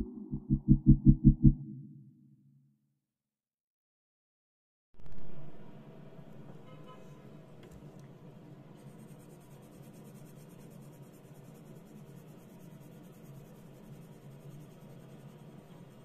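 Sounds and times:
pencil rubbing on paper: 0:08.7 - 0:16.0.

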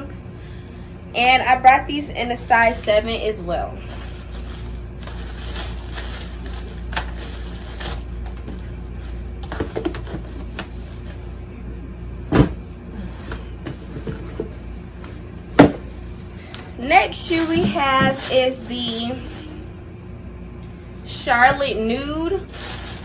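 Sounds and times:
tissue paper rustling: 0:03.8 - 0:08.4, 0:17.1 - 0:19.5, 0:22.3 - 0:23.0.

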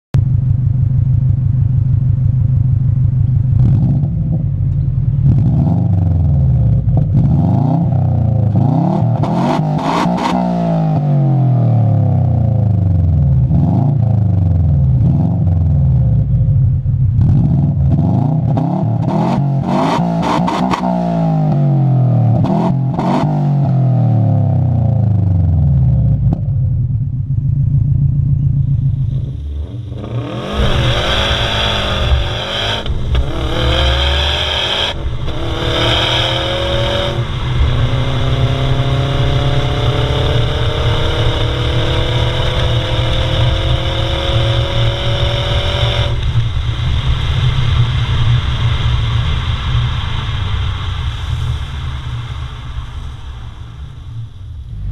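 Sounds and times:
car engine idling and revving: 0:00.1 - 0:54.9
exhaust cracks: 0:25.2 - 0:54.9.

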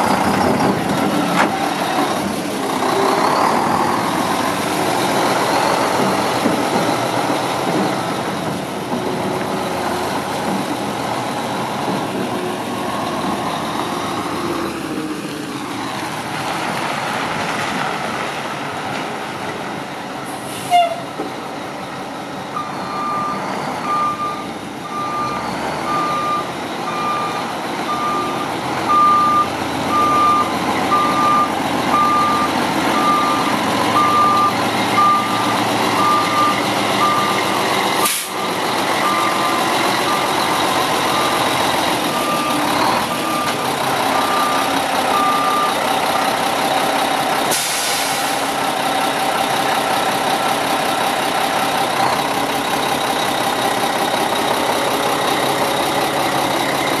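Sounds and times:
diesel engine running: 0:00.0 - 0:57.0
truck back-up alarm beeping: 0:22.6 - 0:46.6.

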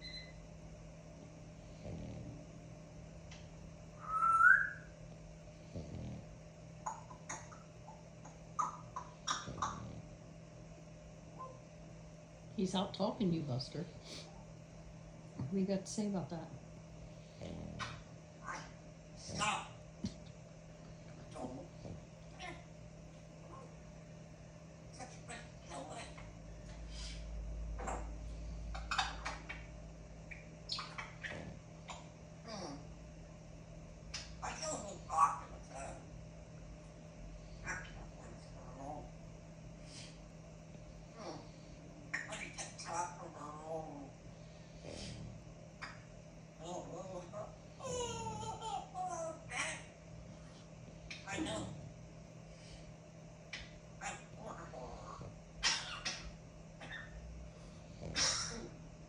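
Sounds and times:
low steady rumble: 0:00.0 - 0:59.0
dog snoring: 0:01.6 - 0:02.7, 0:05.5 - 0:06.5, 0:09.3 - 0:10.2, 0:17.0 - 0:19.7, 0:31.2 - 0:32.0, 0:43.7 - 0:45.5, 0:57.7 - 0:58.8
bird whistle rising in pitch: 0:04.0 - 0:04.9
pet birds chirping and squawking: 0:06.8 - 0:10.0, 0:17.5 - 0:19.8, 0:27.8 - 0:29.7, 0:30.3 - 0:32.1, 0:34.2 - 0:36.0, 0:37.6 - 0:39.0, 0:42.1 - 0:43.8, 0:45.8 - 0:50.0, 0:53.5 - 0:57.3, 0:58.0 - 0:58.8.

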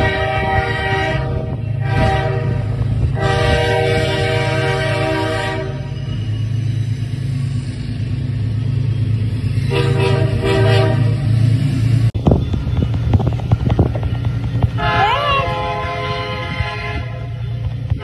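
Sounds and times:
locomotive air horn blasts: 0:00.0 - 0:06.1, 0:09.6 - 0:11.4, 0:14.8 - 0:18.0
diesel engine rumble: 0:00.0 - 0:18.0.

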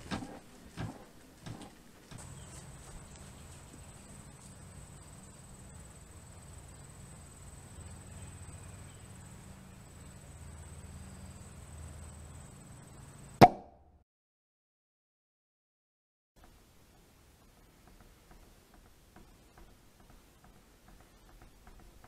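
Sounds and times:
low steady hum: 0:00.0 - 0:13.4
insect chorus: 0:02.2 - 0:13.4.

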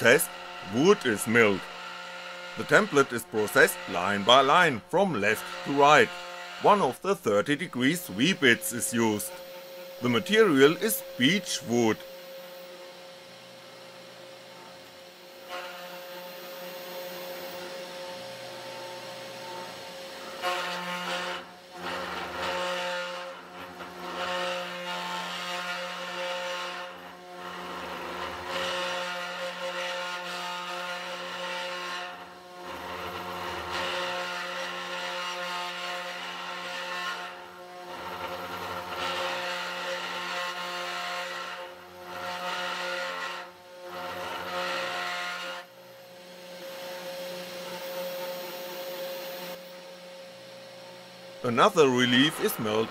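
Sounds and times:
bit rasping through wood: 0:00.0 - 0:12.2, 0:20.3 - 0:45.7
router spindle motor whine: 0:00.0 - 0:23.2, 0:24.0 - 0:52.9.

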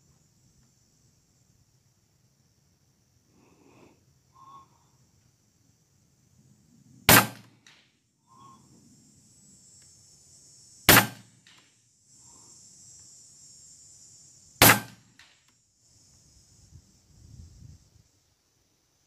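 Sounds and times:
air rifle shots: 0:07.1 - 0:07.8, 0:10.9 - 0:11.6, 0:14.6 - 0:15.4.

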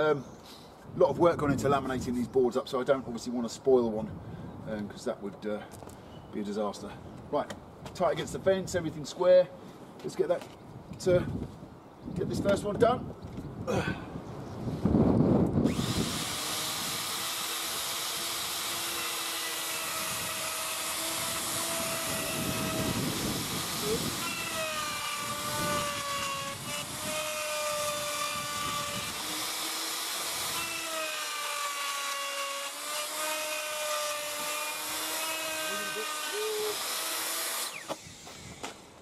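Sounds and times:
router cutting wood: 0:15.6 - 0:38.4.

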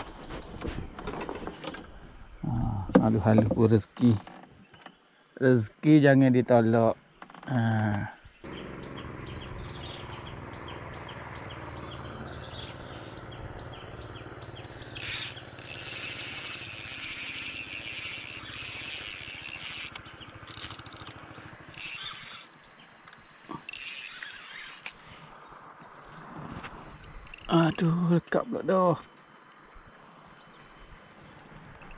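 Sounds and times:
birds and insects chirping: 0:00.0 - 0:31.9
steady low hum: 0:08.0 - 0:28.3.

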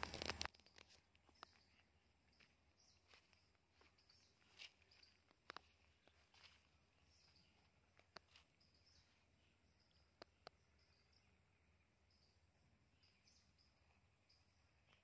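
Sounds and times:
faint clicks: 0:07.9 - 0:08.3, 0:10.2 - 0:10.6.

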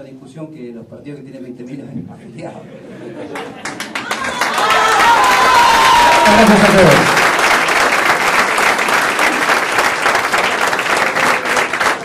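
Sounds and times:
people applauding: 0:03.3 - 0:12.0.

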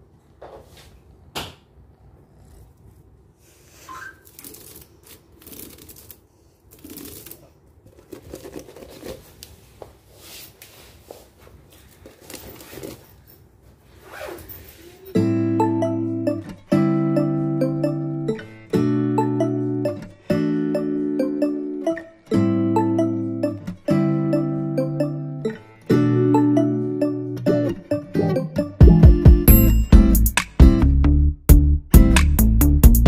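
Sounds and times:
loud keyboard music: 0:15.2 - 0:33.0.

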